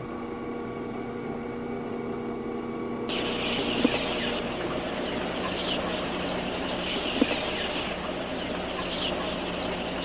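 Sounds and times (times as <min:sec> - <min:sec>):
steady low hum: 0:00.0 - 0:10.0
flock of chickens calling: 0:03.1 - 0:10.0.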